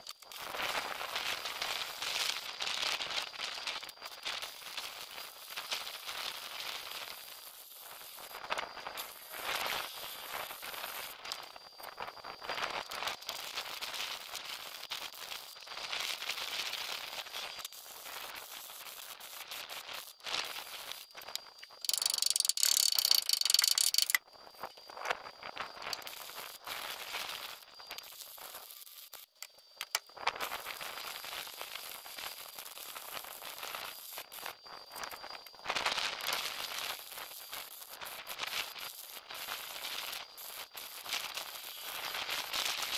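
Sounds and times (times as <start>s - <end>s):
arc welding crackling: 0.0s - 42.9s
welding arc sizzle: 0.0s - 42.9s.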